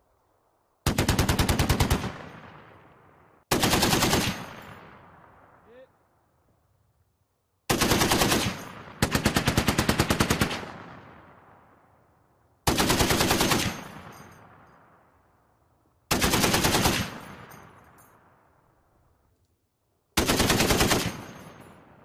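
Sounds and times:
gunfire echo: 0.9 - 5.7.

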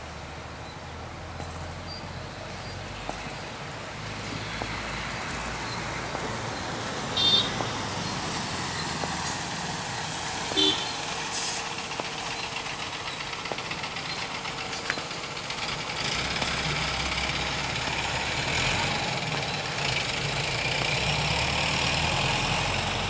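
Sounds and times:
road traffic: 0.0 - 23.0
car horn toots: 7.2 - 7.7, 10.5 - 11.0.

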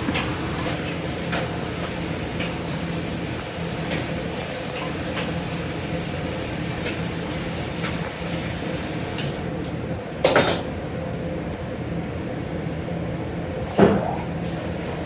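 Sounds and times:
kitchen machinery humming: 0.0 - 15.0.

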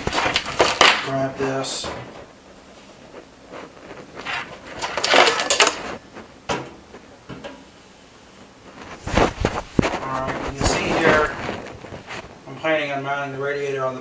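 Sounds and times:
metal hardware clinking and rattling: 4.3 - 6.0.

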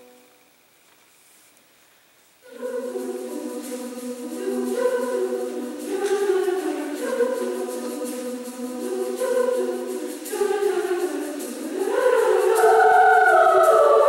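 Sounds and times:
women's choir singing: 2.4 - 14.0.

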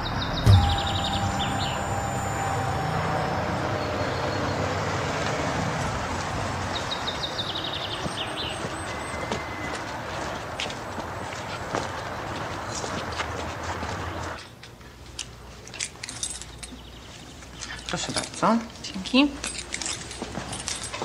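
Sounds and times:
bird chirping: 0.0 - 5.2.

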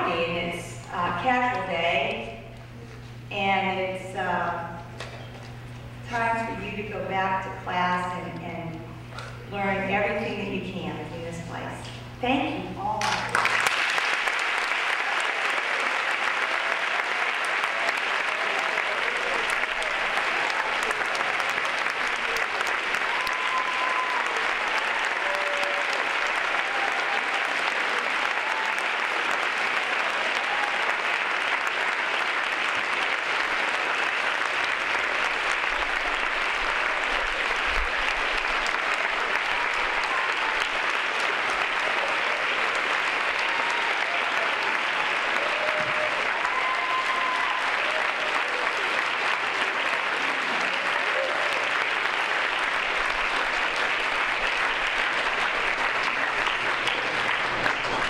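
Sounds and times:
audience applauding: 12.9 - 58.0.

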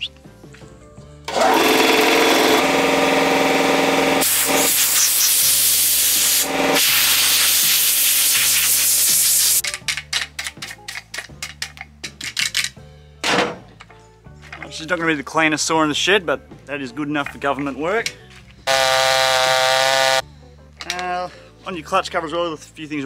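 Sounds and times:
air compressor humming: 1.3 - 9.6, 18.7 - 20.2
compressed air hissing: 4.2 - 9.6, 18.7 - 20.2.

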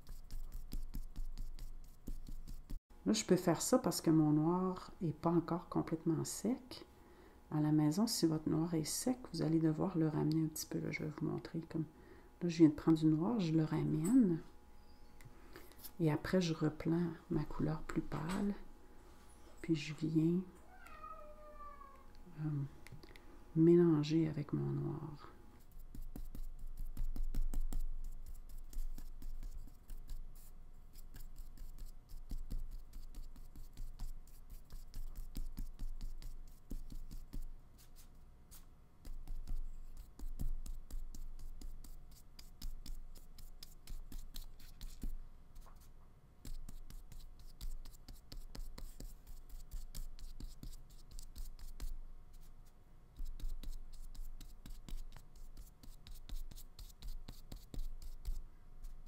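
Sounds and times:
paintbrush scratching on paper: 0.0 - 2.8, 25.6 - 59.0.

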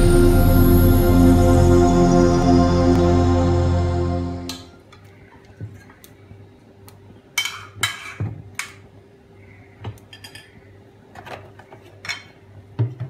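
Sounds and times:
intro music: 0.0 - 4.9.

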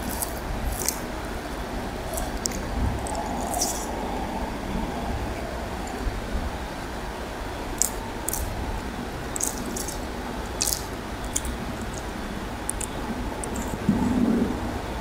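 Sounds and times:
wet squishing of food: 0.0 - 4.0, 7.7 - 13.8
low background rumble: 0.0 - 15.0
small sharp clicks: 12.7 - 13.8.

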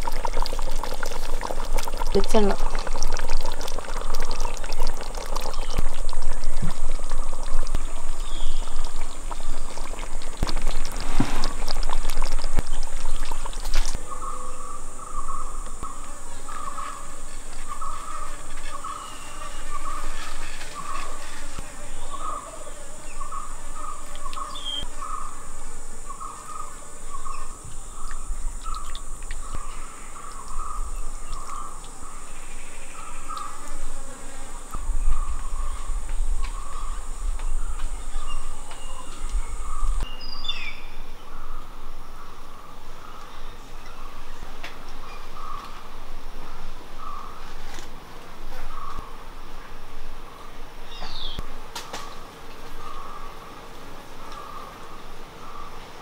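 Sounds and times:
curry bubbling in a pot: 0.0 - 14.0
high insect drone: 0.0 - 56.0.

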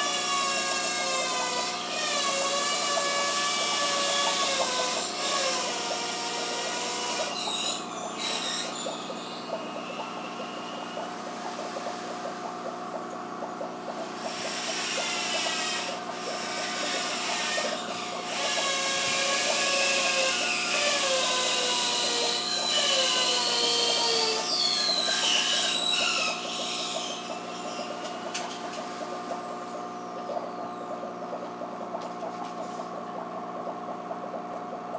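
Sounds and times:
aquarium pump hum: 0.0 - 34.9.

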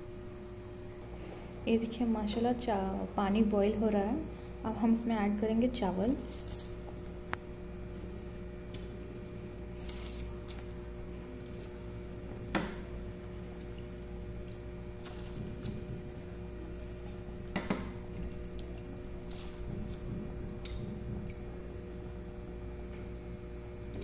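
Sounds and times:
steady hum: 0.0 - 24.0
water boiling in a pot: 5.2 - 24.0.

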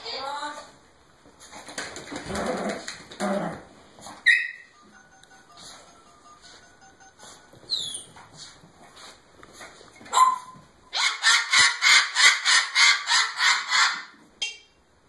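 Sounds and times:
parrot squawking: 4.2 - 4.7, 7.7 - 8.2, 10.1 - 14.2.

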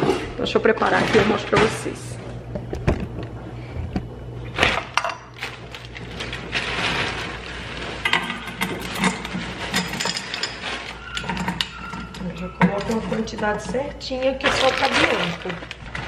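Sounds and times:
rustling: 5.4 - 11.6
pot and utensils clinking: 8.0 - 15.2.

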